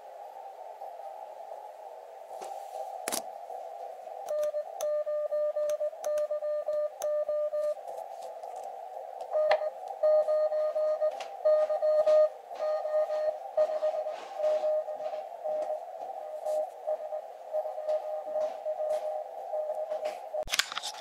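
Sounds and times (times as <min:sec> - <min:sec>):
receiver hiss: 0:00.0 - 0:21.0
morse code tone: 0:04.3 - 0:07.8, 0:09.4 - 0:15.8.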